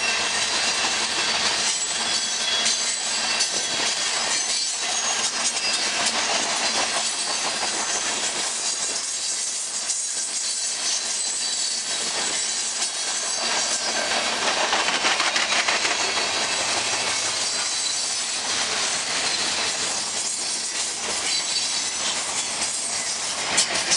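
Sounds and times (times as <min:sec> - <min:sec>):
freight train rolling: 0:00.0 - 0:23.9
wheels clicking over rail joints: 0:00.1 - 0:23.9.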